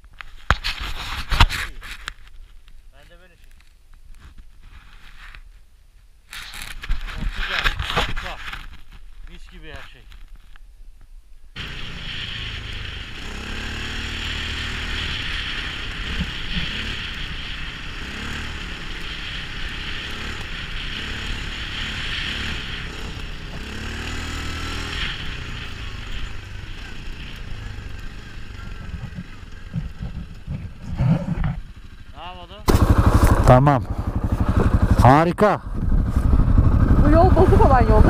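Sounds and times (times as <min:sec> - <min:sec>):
steady hiss: 0:11.1 - 0:30.4
quad bike engine running: 0:11.6 - 0:38.0.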